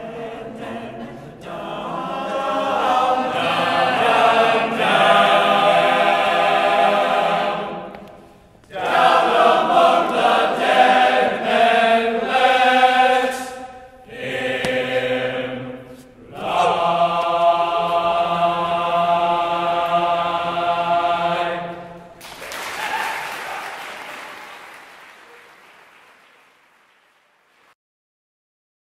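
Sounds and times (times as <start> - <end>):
men's choir singing: 0.0 - 8.1, 8.7 - 22.2.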